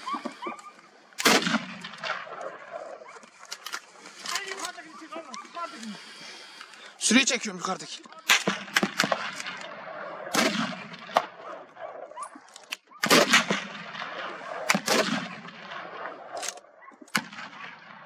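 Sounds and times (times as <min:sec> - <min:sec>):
echoing gunshots: 0:01.2 - 0:03.1, 0:08.2 - 0:12.2, 0:12.9 - 0:18.0.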